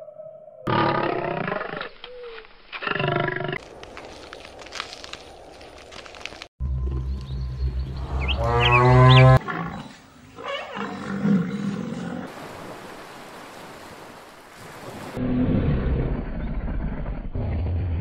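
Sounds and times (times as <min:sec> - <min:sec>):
cow mooing: 0:08.2 - 0:09.8
lion growling low: 0:15.2 - 0:18.0.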